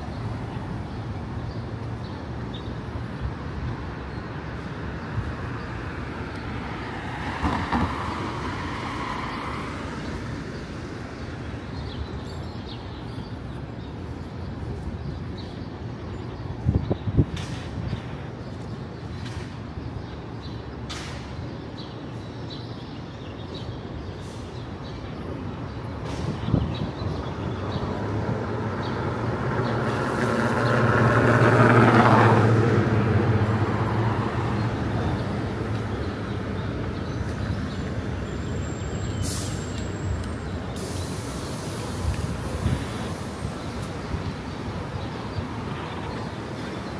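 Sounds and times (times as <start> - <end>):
city traffic hum: 0.0 - 46.9
heavy vehicle passing: 27.9 - 36.6.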